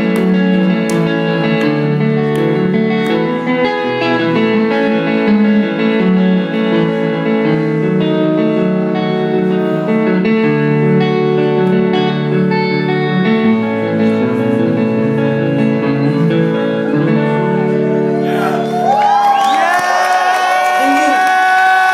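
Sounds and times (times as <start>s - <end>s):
electric guitar ringing notes: 0.0s - 19.3s
live rock music: 0.0s - 19.4s.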